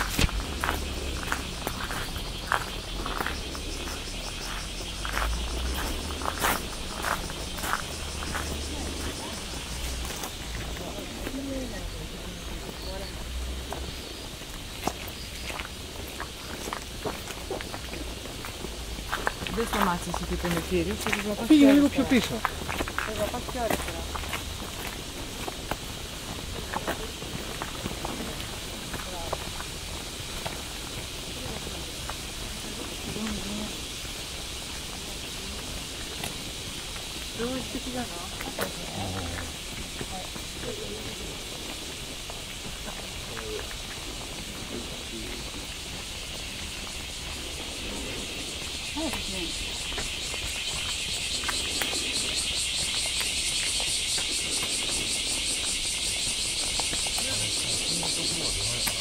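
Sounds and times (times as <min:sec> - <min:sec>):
bamboo rustling: 0:00.0 - 0:08.4
faint footstep clicks: 0:00.0 - 0:08.7
cicadas shrilling: 0:00.0 - 0:59.0.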